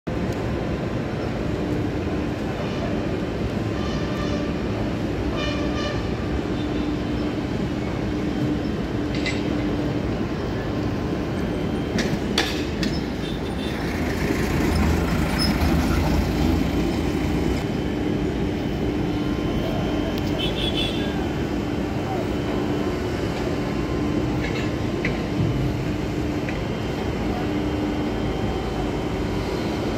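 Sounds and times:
machinery mechanical drone: 0:00.1 - 0:29.9
deep engine rumble: 0:12.6 - 0:29.9.

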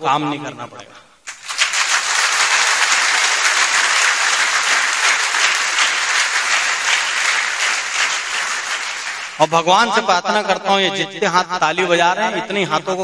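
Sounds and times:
crowd applauding: 0:01.3 - 0:09.5.

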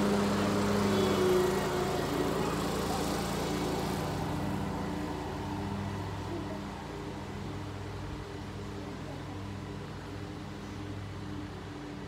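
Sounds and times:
motor humming: 0:00.0 - 0:08.6.

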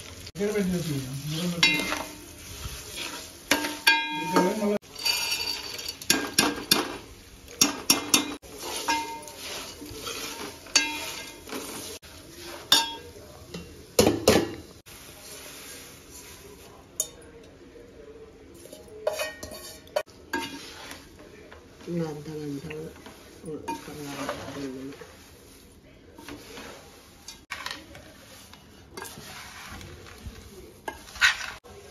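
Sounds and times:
food sizzling in oil: 0:00.0 - 0:17.2, 0:18.6 - 0:31.9
spoon scraping metal pot: 0:02.8 - 0:06.9, 0:07.8 - 0:13.0, 0:18.6 - 0:21.1, 0:26.2 - 0:30.2, 0:30.8 - 0:31.6.

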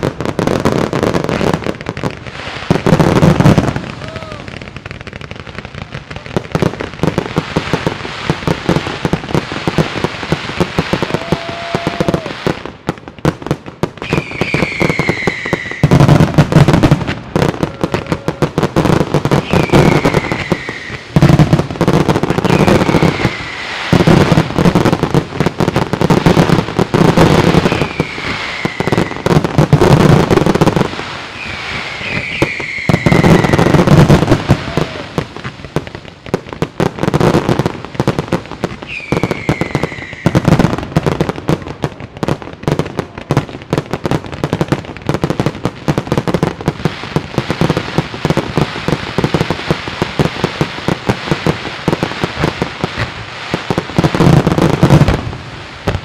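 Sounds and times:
fireworks bangs and crackling: 0:00.0 - 0:56.0
fireworks whistles falling in pitch: 0:10.6 - 0:12.6, 0:14.0 - 0:24.9, 0:26.2 - 0:35.7, 0:38.7 - 0:41.1.

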